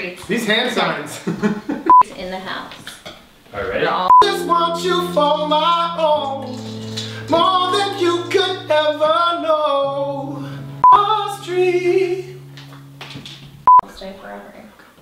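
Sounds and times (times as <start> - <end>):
acoustic guitar: 3.6 - 14.1
loud beep tone: 4.1 - 4.4
men singing: 4.1 - 12.4
sustained keyboard chords: 4.1 - 13.8.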